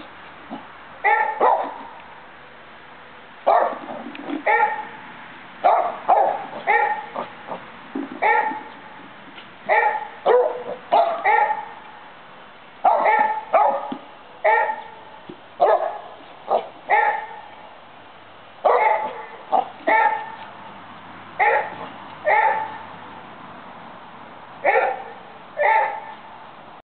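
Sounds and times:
dog barking: 0:01.0 - 0:01.9, 0:03.5 - 0:03.9, 0:04.5 - 0:04.9, 0:05.6 - 0:07.3, 0:08.2 - 0:08.7, 0:09.7 - 0:11.8, 0:12.8 - 0:15.0, 0:15.6 - 0:17.4, 0:18.6 - 0:20.4, 0:21.4 - 0:22.8, 0:24.6 - 0:26.2.

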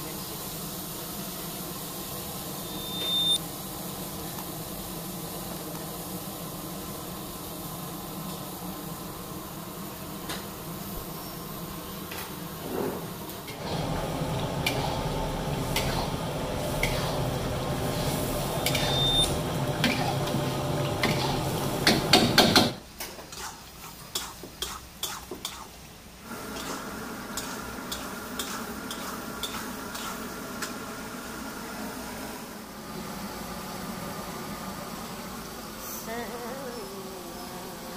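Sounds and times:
sauce sizzling and bubbling: 0:23.3 - 0:34.6.

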